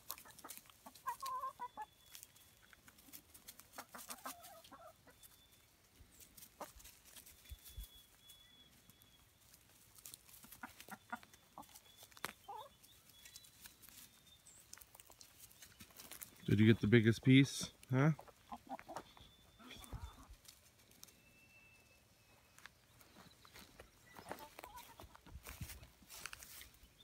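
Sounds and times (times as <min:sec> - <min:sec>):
hens clucking softly: 0:00.0 - 0:05.4, 0:06.2 - 0:07.3, 0:10.0 - 0:12.9, 0:17.8 - 0:21.0, 0:24.2 - 0:25.7.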